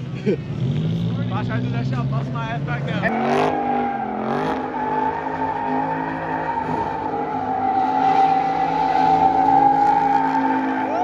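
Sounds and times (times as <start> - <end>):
car tyres squealing: 2.9 - 11.0.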